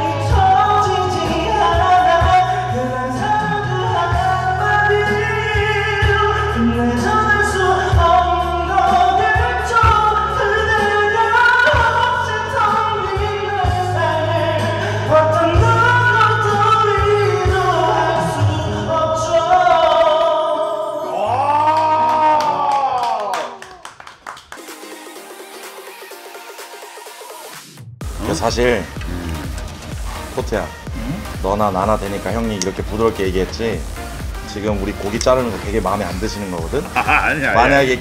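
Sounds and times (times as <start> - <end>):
backing track with bass line: 28.0 - 38.0.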